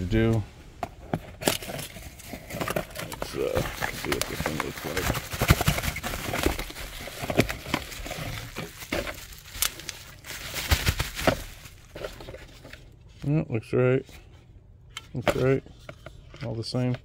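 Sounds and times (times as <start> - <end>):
bubble wrap crinkling: 1.5 - 12.7.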